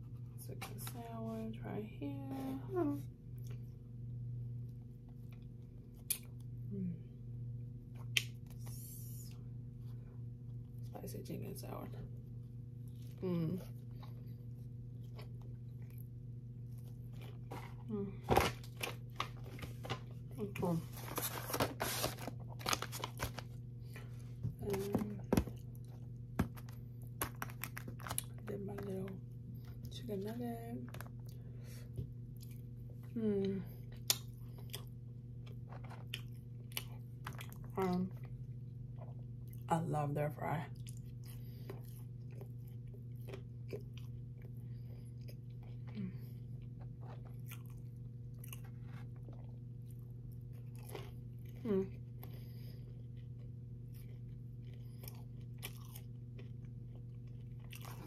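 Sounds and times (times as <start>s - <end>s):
steady low hum: 0.0s - 58.0s
crunchy chewing of fries: 12.1s - 30.2s, 30.8s - 39.7s, 40.7s - 58.0s
paper wrapper crinkling: 20.7s - 23.6s.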